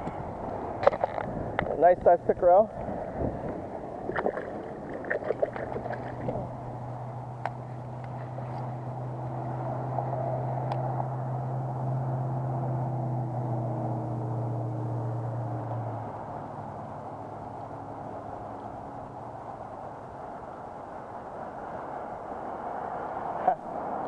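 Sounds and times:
low motor hum: 0:00.0 - 0:21.2
fish splashing in shallow water: 0:02.7 - 0:09.6.

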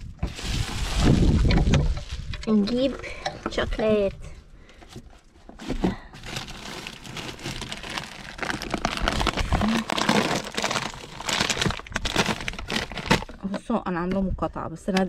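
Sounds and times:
plastic bags rustling and crinkling: 0:00.0 - 0:02.9, 0:05.1 - 0:13.5.

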